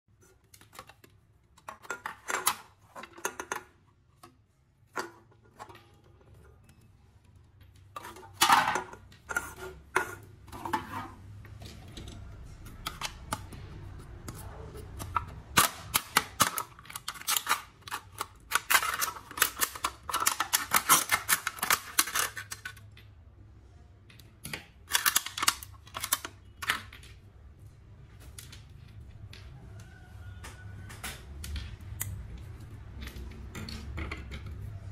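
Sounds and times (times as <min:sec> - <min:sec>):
scissors cutting metal can: 0:14.3 - 0:22.8.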